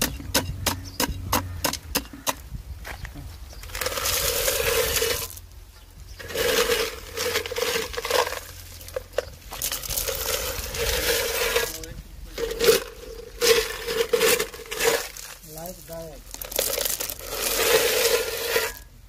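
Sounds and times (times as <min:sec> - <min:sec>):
stones clattering against metal: 0:03.6 - 0:05.4, 0:06.2 - 0:18.9.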